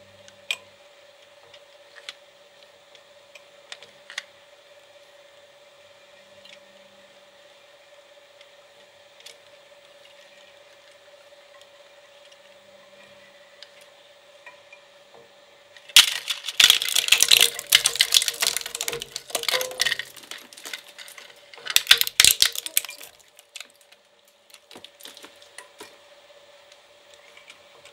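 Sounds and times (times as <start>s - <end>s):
steady hum: 0.0s - 27.9s
shredder cracking and crunching toy: 15.9s - 25.9s.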